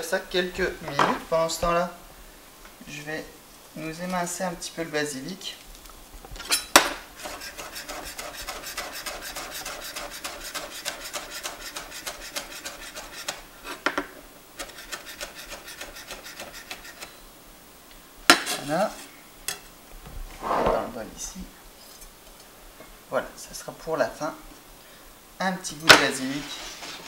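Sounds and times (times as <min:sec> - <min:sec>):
knife chopping on cutting board: 0:06.8 - 0:14.0, 0:14.6 - 0:17.1.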